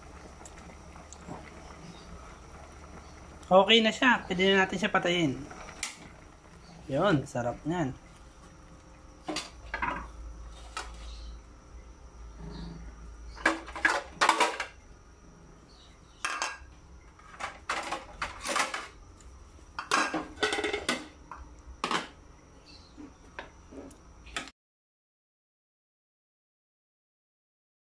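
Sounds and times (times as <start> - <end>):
pot lid and pot clattering: 19.8 - 21.1.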